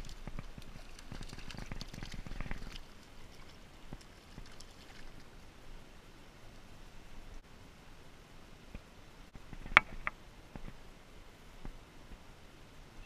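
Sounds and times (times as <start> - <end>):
fish splashing in water: 0.0 - 5.4.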